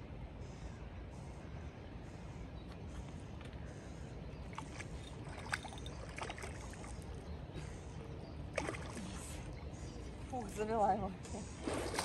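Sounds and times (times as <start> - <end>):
fish splashing at the surface: 11.6 - 12.0.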